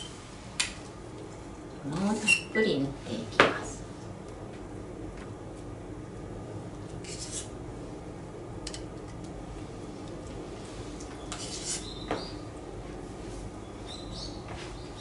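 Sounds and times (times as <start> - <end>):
knife scraping avocado on bread: 7.0 - 7.5, 11.3 - 11.9.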